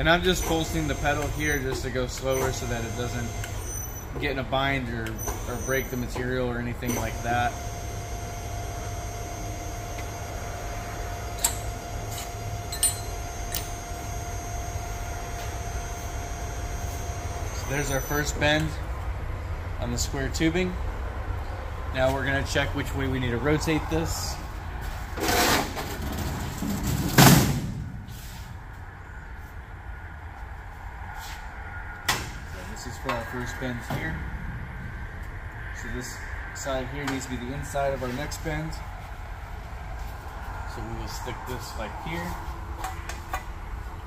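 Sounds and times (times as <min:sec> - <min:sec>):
machine hum: 0:00.0 - 0:30.8.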